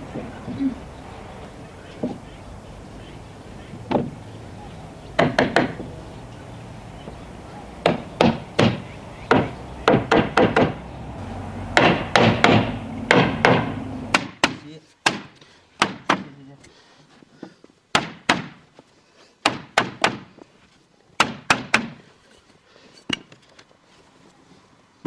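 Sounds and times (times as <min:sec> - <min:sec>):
hammer knocking on wood: 0:03.9 - 0:04.2, 0:05.2 - 0:05.9, 0:07.8 - 0:10.8, 0:11.8 - 0:15.2.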